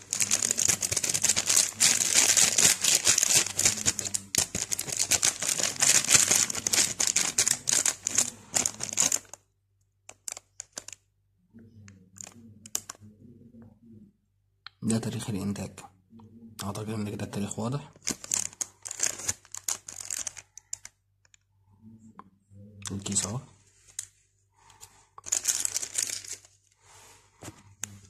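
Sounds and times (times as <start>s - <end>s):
foil sachet crinkling: 0.0s - 9.4s, 10.2s - 11.0s, 18.0s - 20.9s, 25.2s - 26.6s.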